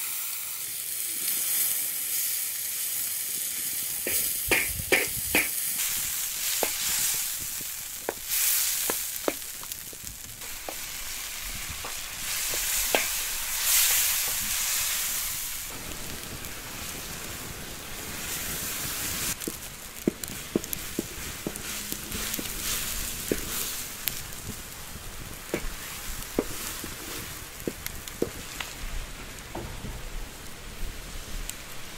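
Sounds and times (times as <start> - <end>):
tomatoes sizzling in pan: 0.0 - 31.9
wooden spoon stirring: 19.4 - 24.3.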